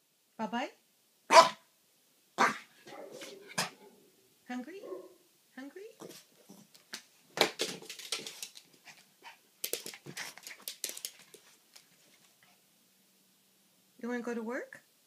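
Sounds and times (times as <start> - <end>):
dog claws clicking on floor: 6.7 - 9.0, 9.6 - 12.3.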